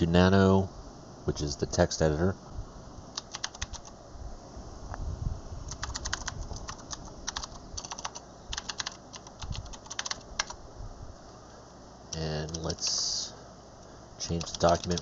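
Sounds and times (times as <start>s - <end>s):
computer keyboard typing: 3.2s - 3.9s, 5.7s - 10.6s, 12.4s - 12.8s, 14.3s - 15.0s.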